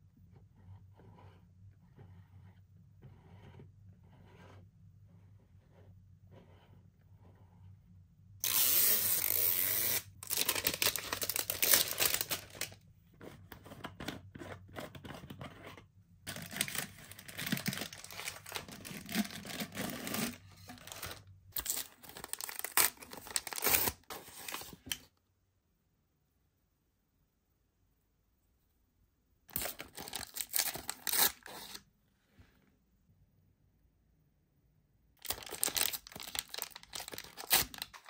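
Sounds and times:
packaging tearing: 8.4s - 12.8s, 16.3s - 24.8s, 29.5s - 31.8s, 35.2s - 38.0s
wrapping crinkling and rustling: 8.4s - 12.8s, 16.3s - 25.0s, 29.5s - 31.8s, 35.2s - 38.0s.

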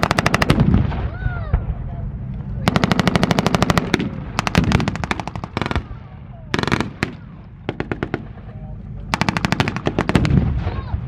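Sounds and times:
machine guns firing bursts: 0.0s - 0.8s, 2.7s - 5.9s, 6.5s - 8.4s, 9.1s - 10.6s.

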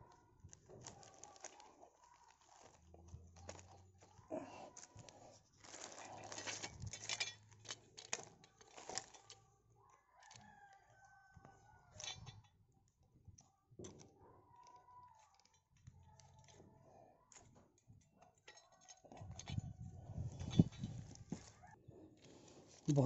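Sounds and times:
faint metal clicks and scrapes: 0.0s - 23.0s
rooster crowing: 10.0s - 12.0s.

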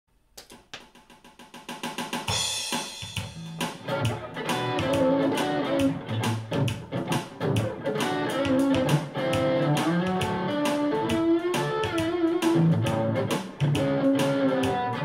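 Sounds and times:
drum beat: 0.5s - 15.0s
electric guitar gospel shuffle: 3.4s - 15.0s.

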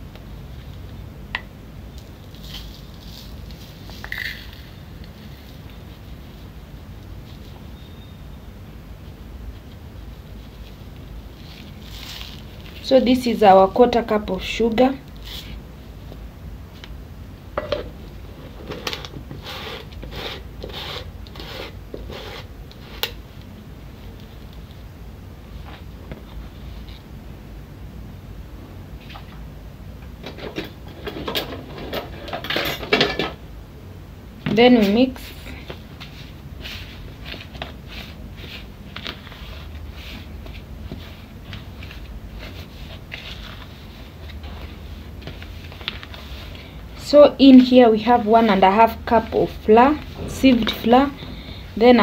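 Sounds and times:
spatula scraping plastic bowl: 18.6s - 23.2s, 50.0s - 51.5s
utensils rustling scrapes: 49.4s - 52.0s.

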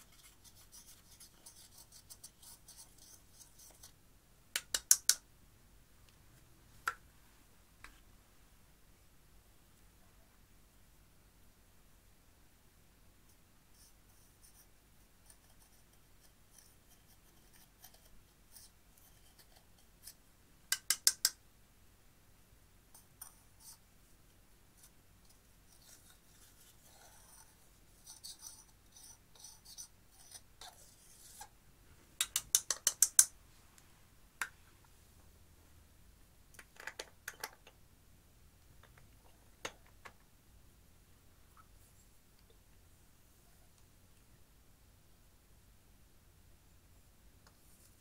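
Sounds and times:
faint scratching: 0.0s - 4.0s, 23.0s - 32.2s, 41.5s - 42.2s, 47.5s - 48.0s.

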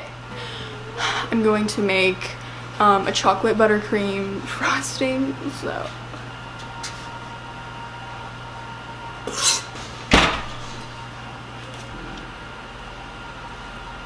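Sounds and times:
faint appliance hum: 0.0s - 14.0s
oven door banging shut: 10.1s - 10.9s.

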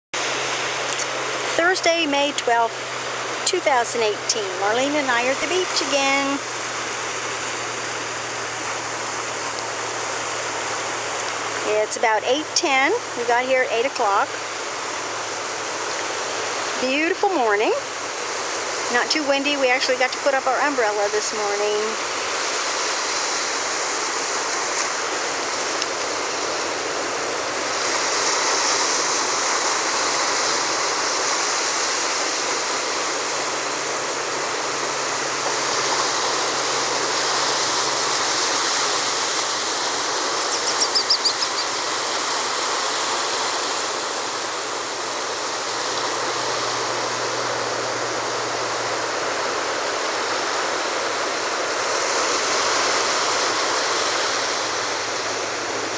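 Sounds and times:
ocean surf breaking: 0.2s - 55.9s
high chirps: 40.4s - 41.8s.

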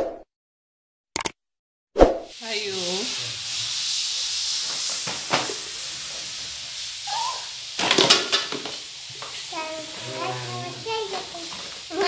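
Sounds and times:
background recording hiss: 2.4s - 12.0s.

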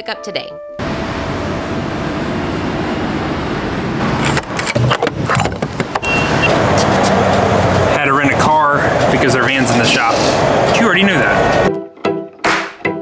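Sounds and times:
road traffic passing: 0.8s - 11.7s
short high beep: 6.0s - 6.5s.

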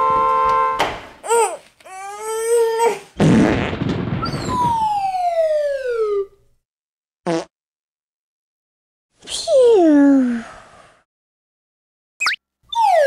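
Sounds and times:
cartoon fart blast: 3.2s - 4.8s, 7.2s - 7.5s.

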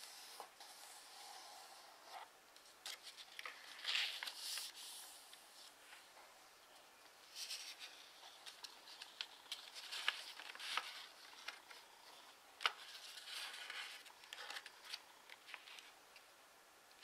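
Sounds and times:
paper rustling and crinkling: 2.6s - 6.2s, 7.2s - 16.3s.

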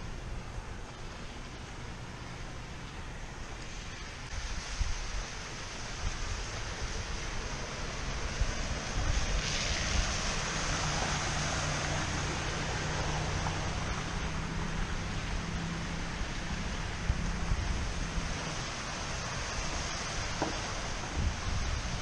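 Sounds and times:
water noise: 0.0s - 22.0s
car tyres spraying water: 3.5s - 22.0s
wind buffeting microphone: 4.3s - 12.7s, 16.3s - 22.0s.

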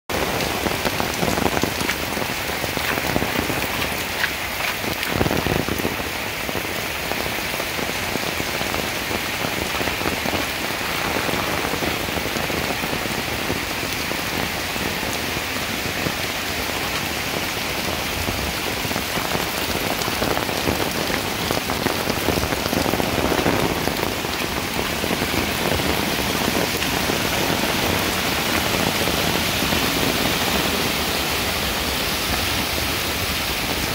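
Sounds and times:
heavy rain on concrete and foliage: 0.1s - 33.9s.

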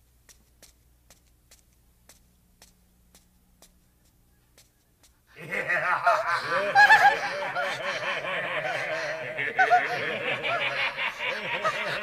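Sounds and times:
cartoon character laughing: 5.3s - 12.0s.

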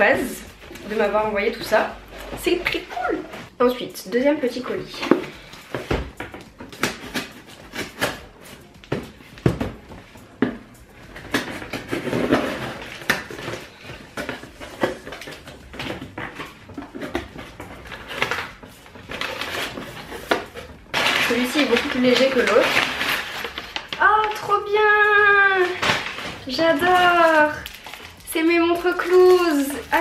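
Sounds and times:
packing paper rustling and crinkling: 5.0s - 30.0s.

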